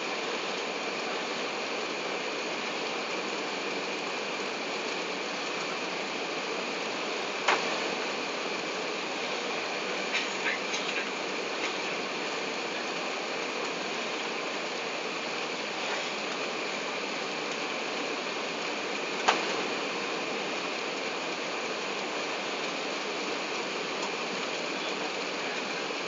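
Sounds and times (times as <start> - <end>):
faint steady whine: 0.0 - 26.0.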